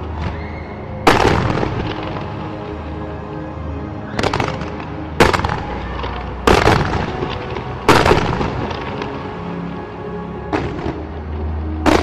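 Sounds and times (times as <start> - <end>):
firework crackling: 4.2 - 9.4
firework shells booming: 6.5 - 9.1.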